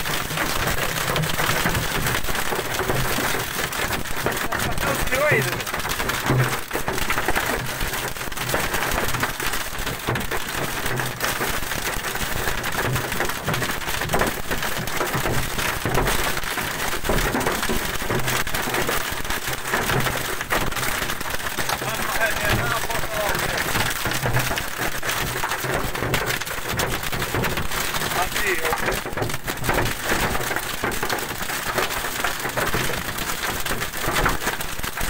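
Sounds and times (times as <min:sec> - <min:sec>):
hail drumming on car roof: 0:00.0 - 0:35.0.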